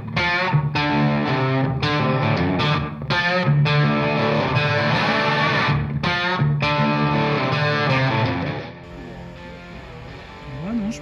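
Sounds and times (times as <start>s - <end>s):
guitar strumming chords: 0.0s - 11.0s.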